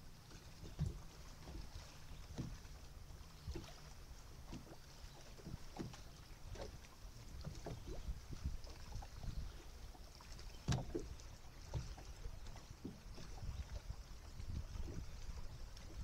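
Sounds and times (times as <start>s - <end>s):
water slapping against hull: 0.0s - 16.0s.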